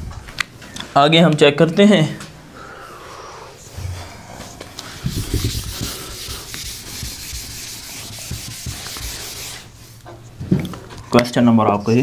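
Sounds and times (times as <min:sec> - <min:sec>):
eraser rubbing on whiteboard: 0:05.0 - 0:10.0.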